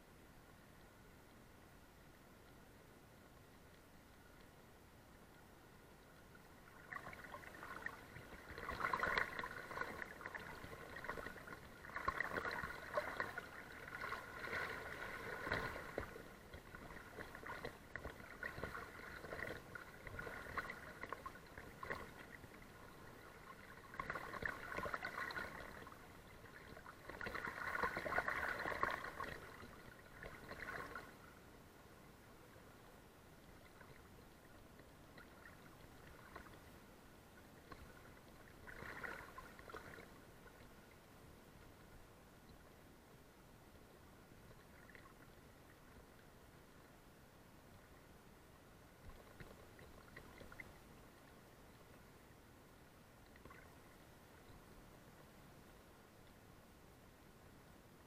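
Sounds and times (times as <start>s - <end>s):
faint steady water rush: 0.0s - 58.0s
river water sloshing and splashing: 6.4s - 31.4s, 33.5s - 36.8s, 37.6s - 40.9s, 49.0s - 51.0s.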